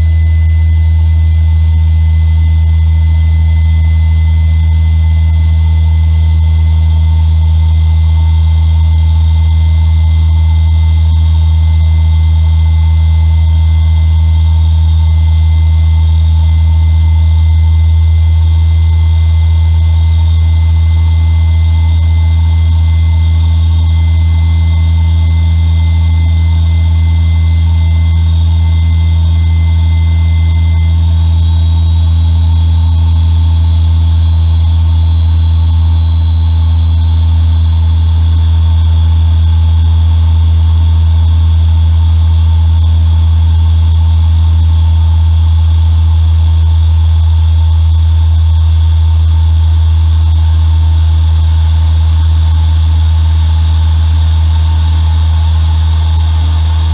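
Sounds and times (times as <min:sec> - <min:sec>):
high turbine whines: 0:00.0 - 0:04.7, 0:21.6 - 0:38.7.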